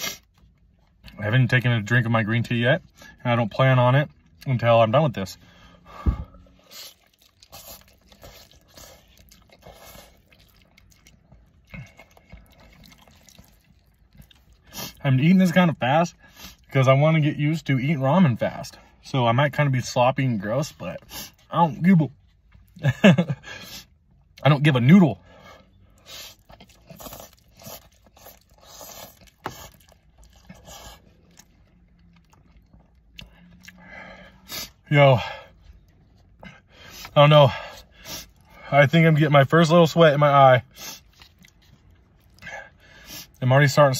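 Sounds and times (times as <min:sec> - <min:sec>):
man slurping and chewing noodles: 0:00.0 - 0:01.2, 0:05.4 - 0:15.0, 0:20.8 - 0:21.5, 0:25.2 - 0:38.7, 0:40.6 - 0:43.4.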